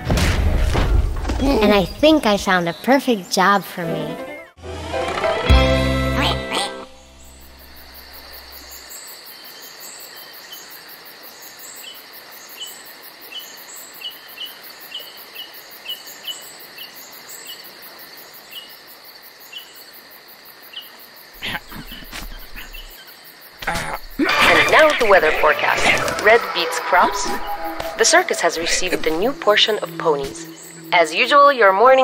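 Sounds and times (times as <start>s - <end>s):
crickets chirping: 7.0s - 32.0s.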